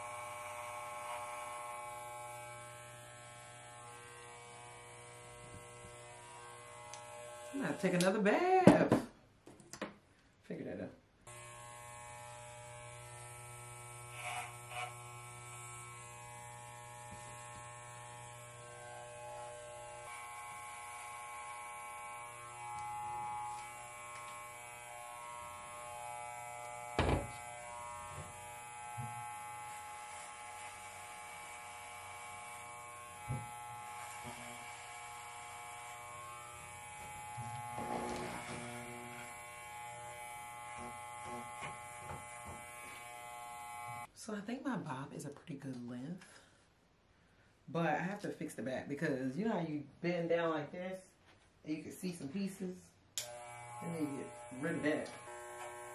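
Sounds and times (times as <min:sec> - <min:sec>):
electric hair clippers buzzing: 0:00.0 - 0:08.2, 0:11.3 - 0:44.1, 0:53.2 - 0:55.9.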